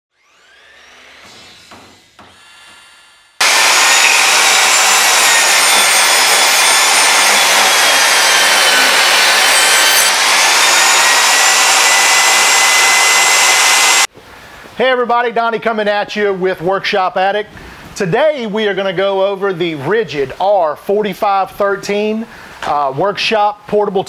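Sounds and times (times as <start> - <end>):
saw cutting wooden board: 0.1 - 14.1
table saw whining: 0.1 - 14.1.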